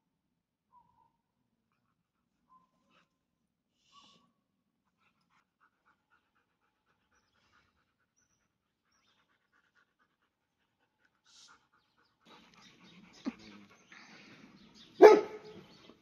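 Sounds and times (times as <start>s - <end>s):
dog panting: 4.8s - 16.0s.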